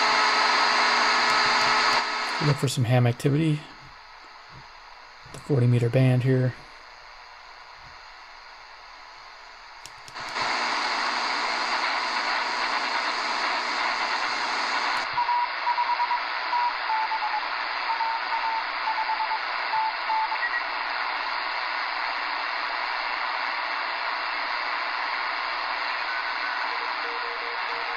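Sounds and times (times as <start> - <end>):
shortwave radio static hiss: 0.0 - 27.9
morse code beeps: 15.2 - 20.6.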